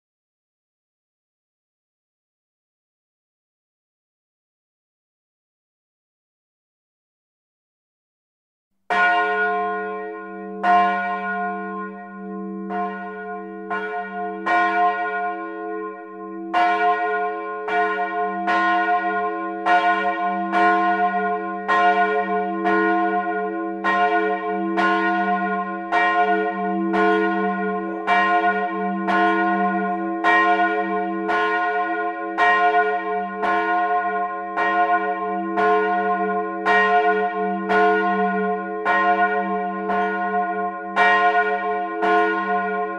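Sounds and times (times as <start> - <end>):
church bells ringing: 8.9 - 42.9.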